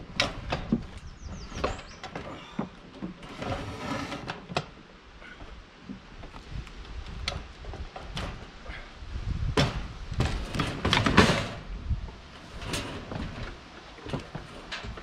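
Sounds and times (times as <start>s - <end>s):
knocks and scraping handling noises: 0.0s - 4.9s, 9.6s - 15.0s.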